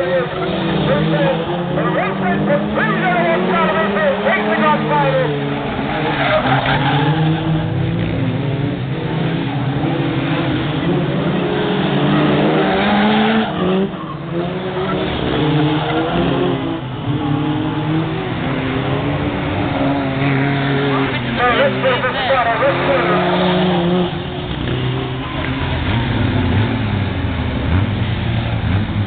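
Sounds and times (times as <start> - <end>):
racing car engines: 0.0 - 29.0.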